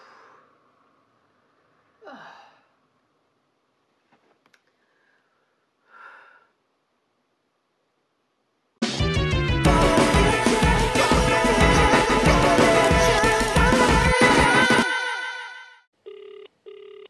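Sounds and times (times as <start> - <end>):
woman sighing: 2.0 - 2.7, 5.9 - 6.5
music: 8.8 - 15.4.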